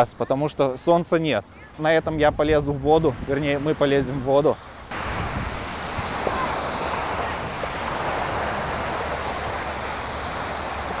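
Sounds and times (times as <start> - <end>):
wind on microphone: 2.0 - 11.0
small waves breaking on sand: 2.8 - 11.0.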